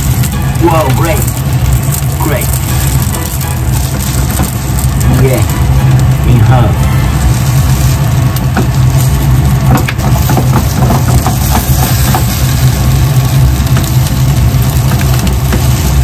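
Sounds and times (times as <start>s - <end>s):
loud steady low hum: 0.0s - 16.0s
spatula scraping frying pan: 7.0s - 13.0s.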